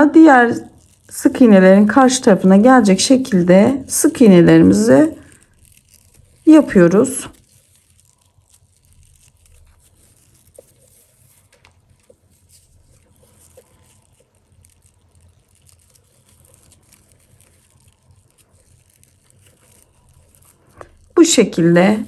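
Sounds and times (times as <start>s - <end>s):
crochet hook working yarn: 0.2s - 21.9s.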